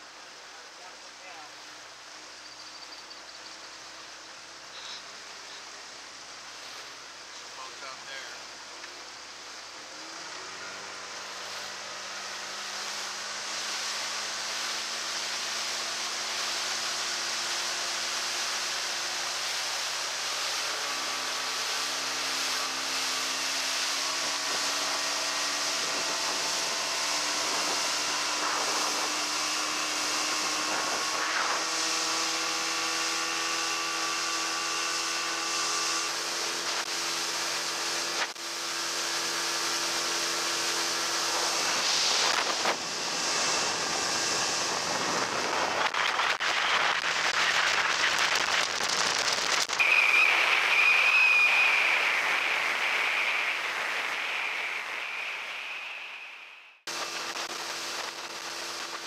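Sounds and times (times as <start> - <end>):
wind hiss: 3.9 - 59.0
outboard motor running: 4.3 - 54.5, 56.9 - 59.0
rushing water: 5.1 - 33.5.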